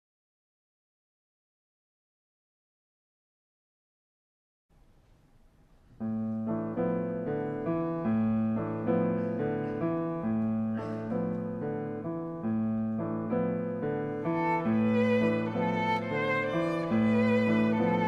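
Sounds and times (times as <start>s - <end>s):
piano playing chords: 6.0s - 18.0s.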